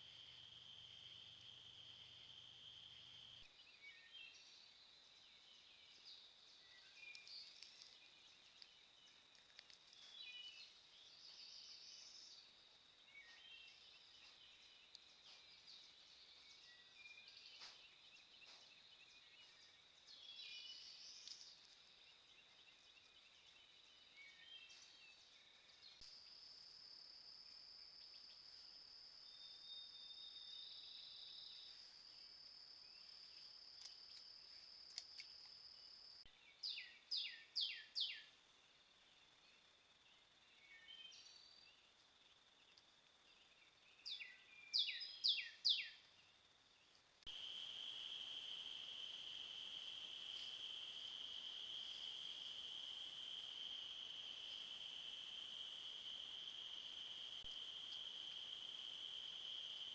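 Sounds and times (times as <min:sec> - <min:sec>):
high insect drone: 0:00.0 - 0:03.6, 0:04.2 - 0:43.5, 0:44.1 - 0:59.9
bird chirps: 0:03.0 - 0:26.3, 0:27.8 - 0:38.4, 0:42.6 - 0:46.4.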